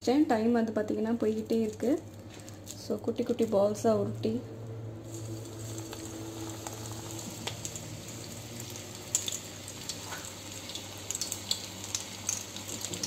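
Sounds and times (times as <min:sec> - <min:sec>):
steady low hum: 0:00.0 - 0:12.9
batter sizzling in hot oil: 0:04.7 - 0:13.0
sharp crackles: 0:05.0 - 0:13.0.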